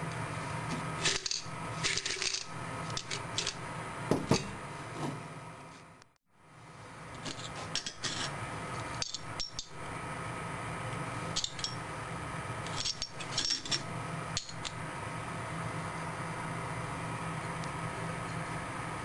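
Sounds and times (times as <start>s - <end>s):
steady background hum: 0.0s - 19.0s
ceramic chips clicking and scraping: 7.2s - 8.3s, 12.6s - 14.8s.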